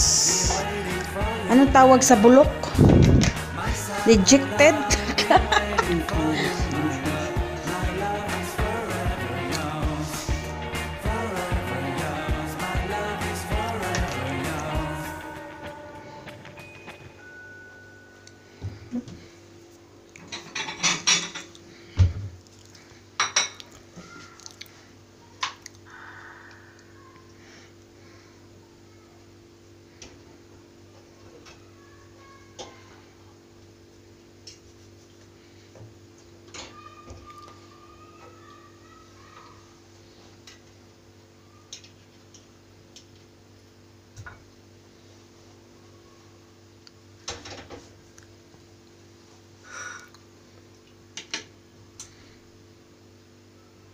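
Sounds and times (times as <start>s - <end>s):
steady low hum: 0.0s - 23.9s
faint steady hum: 0.0s - 53.9s
dishes and cutlery clattering: 20.2s - 21.6s.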